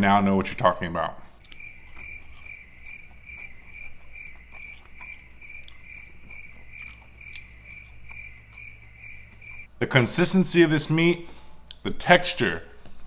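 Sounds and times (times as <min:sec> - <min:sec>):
cricket chirping: 0:01.4 - 0:09.7.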